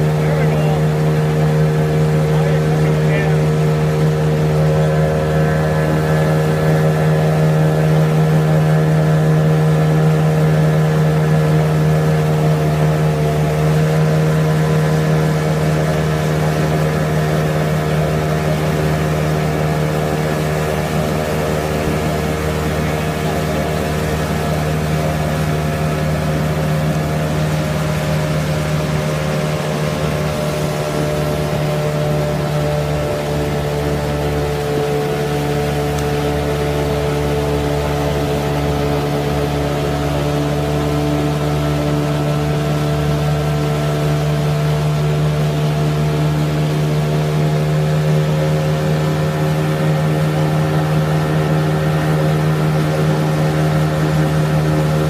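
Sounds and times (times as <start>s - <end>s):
boat wake rushing: 0.0s - 55.0s
motorboat engine hum: 0.0s - 55.0s.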